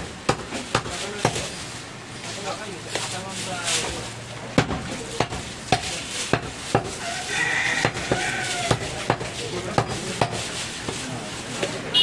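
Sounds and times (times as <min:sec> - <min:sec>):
cleaver chopping meat on wood: 0:00.2 - 0:01.5, 0:04.6 - 0:07.0, 0:07.7 - 0:11.0.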